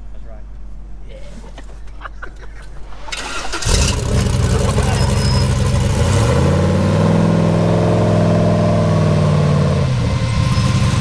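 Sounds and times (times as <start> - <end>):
buggy engine revving and idling: 3.1 - 11.0.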